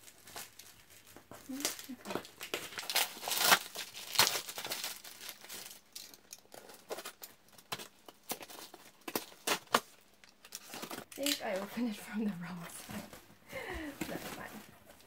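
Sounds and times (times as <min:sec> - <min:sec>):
paper packaging crinkling: 0:00.0 - 0:11.9
cardboard tearing: 0:01.4 - 0:05.8, 0:06.5 - 0:09.9.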